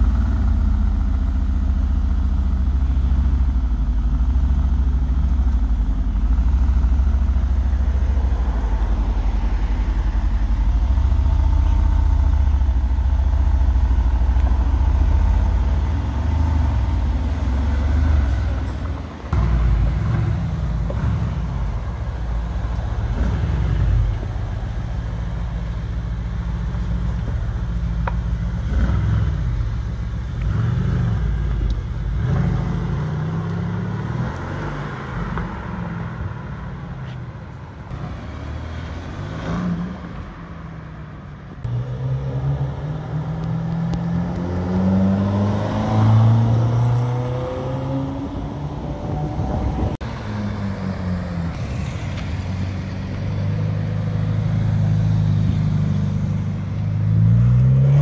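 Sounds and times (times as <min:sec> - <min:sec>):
car engine idling: 0:00.0 - 0:30.6
car engine revving: 0:41.6 - 0:58.0.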